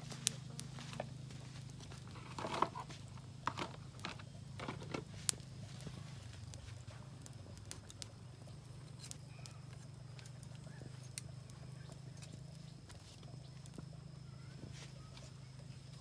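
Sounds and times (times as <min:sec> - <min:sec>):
steady low hum: 0:00.0 - 0:16.0.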